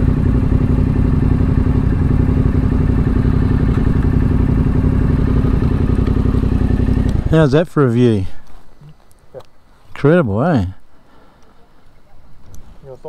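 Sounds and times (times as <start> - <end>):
motorcycle engine running: 0.0 - 7.8.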